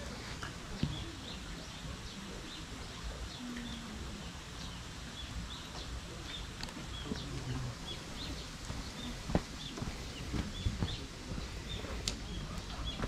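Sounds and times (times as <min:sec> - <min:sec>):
low background hiss: 0:00.0 - 0:13.0
small birds chirping: 0:00.0 - 0:13.0.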